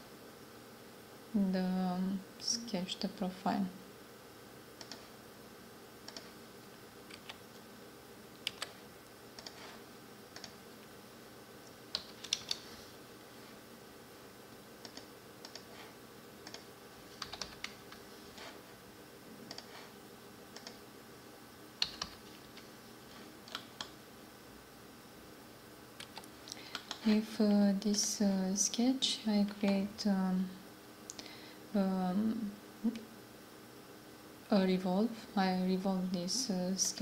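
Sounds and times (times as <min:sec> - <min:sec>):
faint steady hum: 0:00.0 - 0:37.0
keyboard and mouse clicking: 0:04.8 - 0:05.1, 0:06.1 - 0:06.3, 0:07.1 - 0:07.4, 0:08.4 - 0:08.8, 0:09.4 - 0:09.7, 0:10.3 - 0:10.6, 0:11.9 - 0:12.6, 0:14.8 - 0:15.7, 0:16.4 - 0:17.8, 0:19.5 - 0:19.8, 0:20.5 - 0:20.8, 0:21.8 - 0:22.2, 0:23.4 - 0:23.9, 0:26.0 - 0:27.1.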